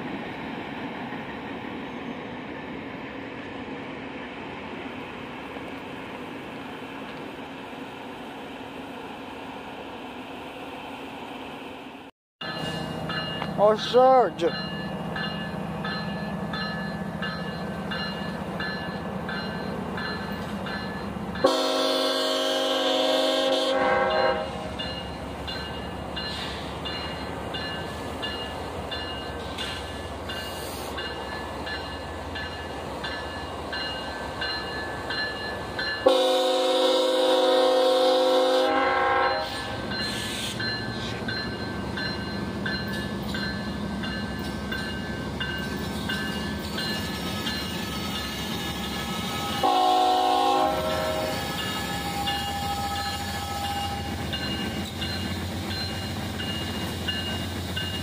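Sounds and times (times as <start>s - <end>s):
low rumble of train: 0.0s - 58.0s
locomotive air horn blasts: 21.4s - 24.6s, 36.0s - 39.7s, 48.8s - 54.0s.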